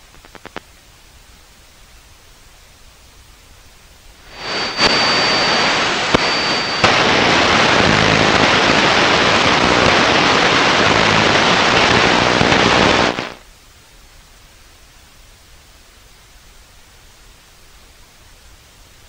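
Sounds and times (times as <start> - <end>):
radio static hiss: 0.0 - 0.7, 4.2 - 13.5
high whistle: 4.3 - 7.8.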